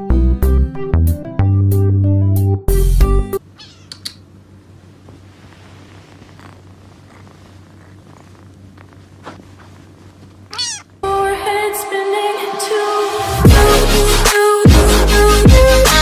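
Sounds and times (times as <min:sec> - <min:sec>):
low steady hum: 0:03.4 - 0:14.2
cat meowing: 0:03.6 - 0:04.2, 0:10.5 - 0:11.0
loud music: 0:11.1 - 0:16.0.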